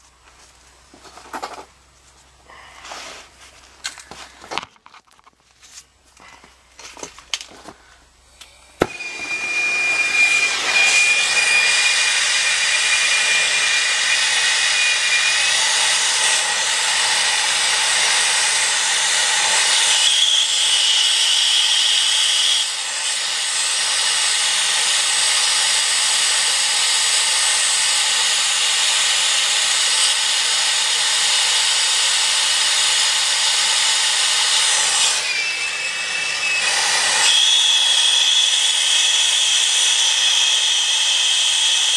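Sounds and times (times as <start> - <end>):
torch flame hissing: 8.6 - 35.2.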